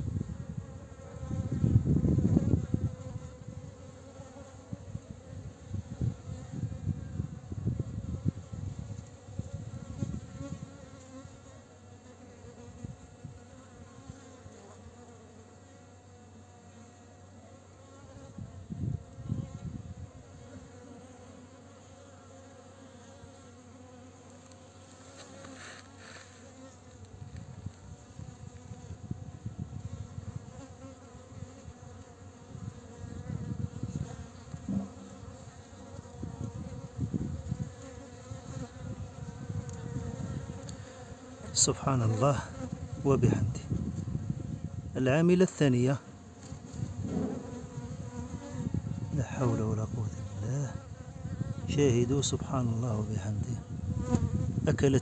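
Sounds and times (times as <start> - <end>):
honeybees buzzing: 0.0 - 55.0.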